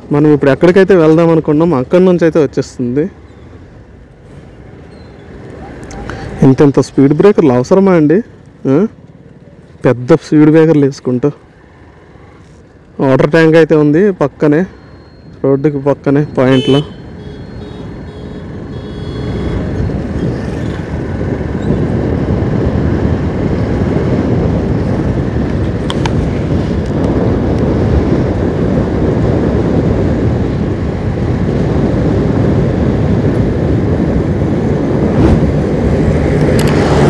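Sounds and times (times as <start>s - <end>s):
wind noise on microphone: 16.2s - 37.0s.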